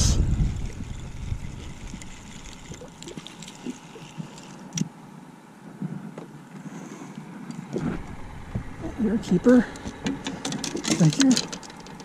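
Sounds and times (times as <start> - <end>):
fishing tackle knocks and clicks: 9.8 - 12.0.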